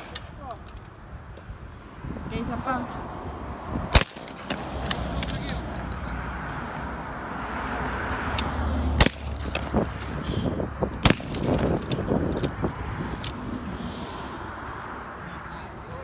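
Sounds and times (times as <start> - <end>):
shotgun shots: 3.9 - 4.7, 9.0 - 9.6, 11.0 - 11.8
distant gunshots: 4.0 - 4.7.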